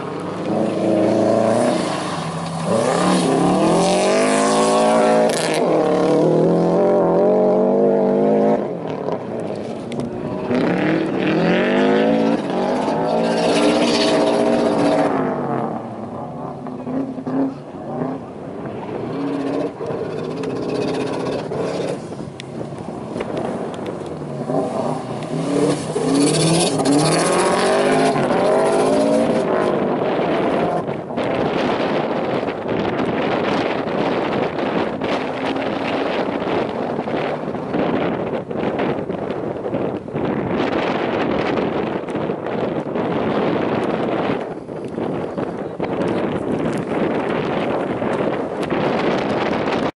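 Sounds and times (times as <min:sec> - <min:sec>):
car engine revving: 0:00.0 - 0:39.8.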